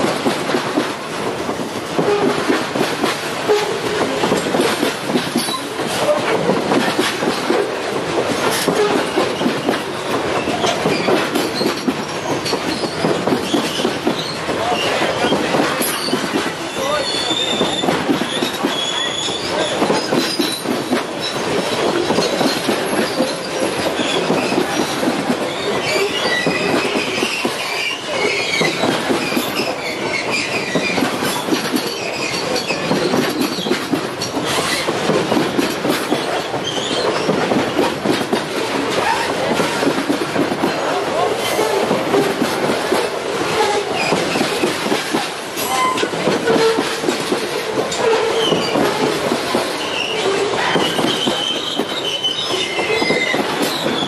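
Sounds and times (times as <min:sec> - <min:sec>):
freight train rumbling past: 0:00.0 - 0:54.0
wheel squeals: 0:08.5 - 0:34.9, 0:36.1 - 0:37.4, 0:45.6 - 0:47.0, 0:47.9 - 0:49.0, 0:49.7 - 0:54.0.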